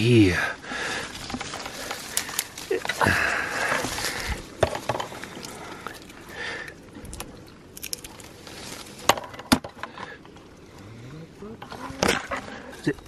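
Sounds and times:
oyster shells crunching and clicking: 4.8s - 10.4s.

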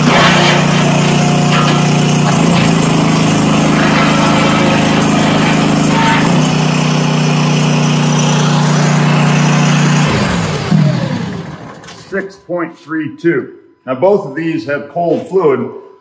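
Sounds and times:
small gasoline engine running: 0.0s - 12.1s.

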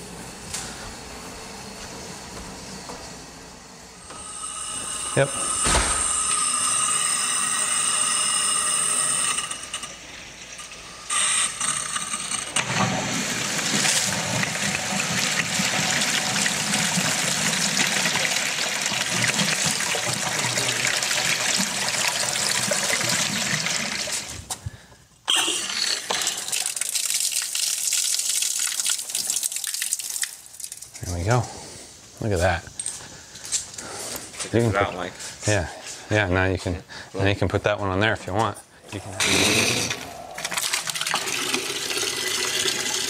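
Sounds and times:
squealing whine: 4.0s - 10.1s
water rushing into plastic bucket: 12.6s - 24.3s, 25.6s - 31.0s, 40.4s - 43.0s
water pouring from spigot: 13.3s - 24.3s, 25.4s - 31.0s, 40.4s - 43.0s.

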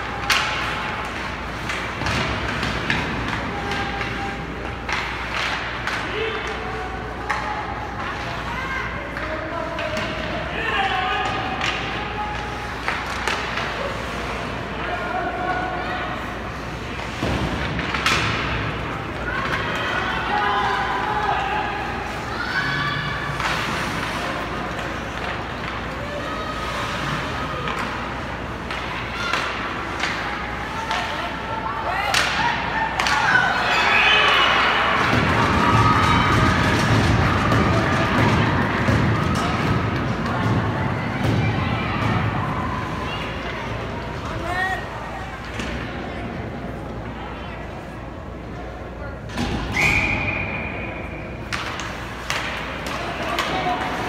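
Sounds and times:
background din in large hall: 0.0s - 54.0s
ice arena hum: 0.0s - 54.0s
spectators' voices: 0.0s - 54.0s.

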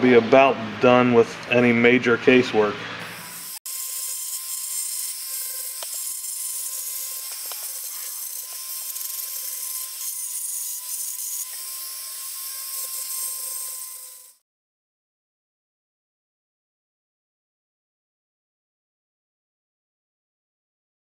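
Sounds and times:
rotary tool grinding metal: 3.0s - 14.4s.

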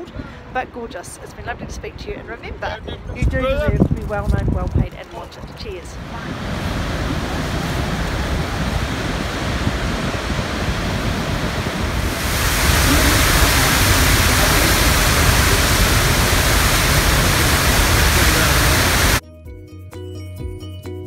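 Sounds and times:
waterfall rushing: 6.0s - 19.2s.

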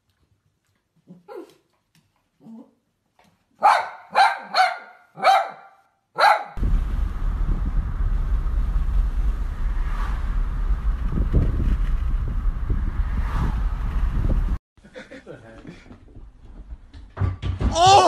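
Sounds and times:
small dog barking: 3.6s - 6.6s
road noise inside a car: 6.6s - 14.6s.

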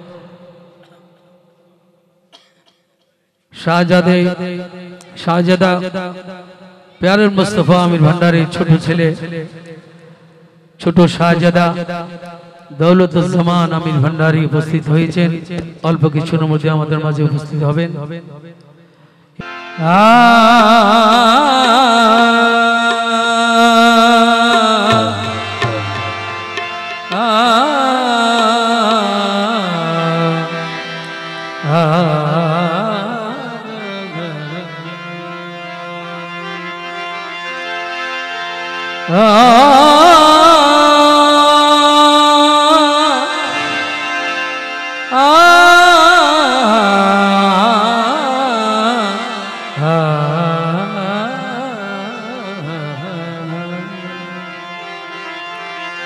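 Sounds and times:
harmonium: 0.0s - 56.0s
tabla and dhol drums: 23.6s - 27.9s.

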